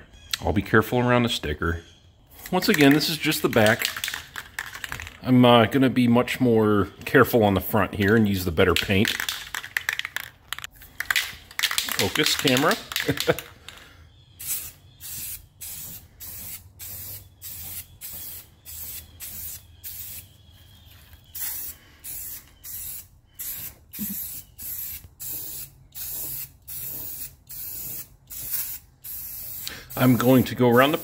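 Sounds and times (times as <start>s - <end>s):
spray can hissing: 2.4s - 5.1s, 9.0s - 13.4s, 14.4s - 20.4s, 21.3s - 31.0s.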